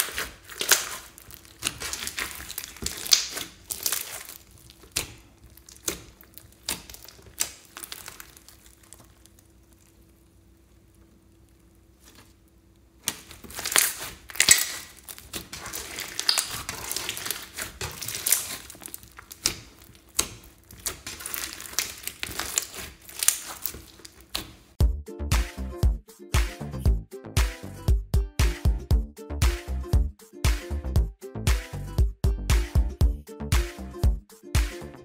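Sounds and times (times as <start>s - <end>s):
hands squishing sticky slime: 0.0s - 24.8s
wet crackling and popping: 0.0s - 24.8s.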